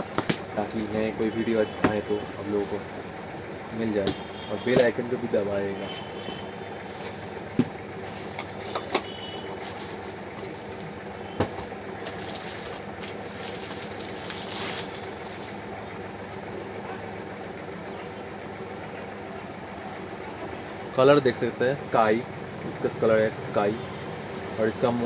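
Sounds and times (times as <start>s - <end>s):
mechanical hum: 0.0s - 25.0s
plastic wrapping rustling: 12.0s - 15.7s.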